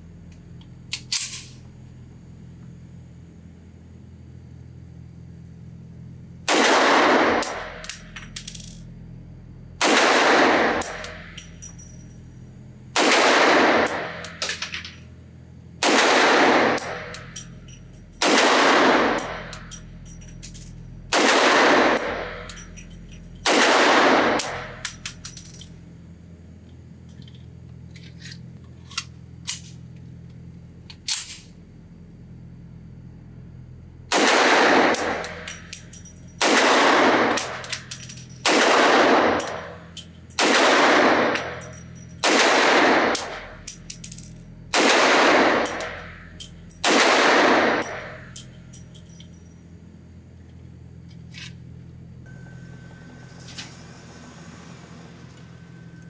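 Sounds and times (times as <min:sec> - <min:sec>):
pistol shots echoing indoors: 0:06.4 - 0:08.0, 0:09.8 - 0:11.3, 0:12.9 - 0:14.6, 0:15.8 - 0:17.5, 0:18.2 - 0:19.9, 0:21.1 - 0:22.8, 0:23.4 - 0:24.9, 0:34.1 - 0:35.7, 0:36.4 - 0:37.8, 0:38.4 - 0:43.6, 0:44.7 - 0:48.7.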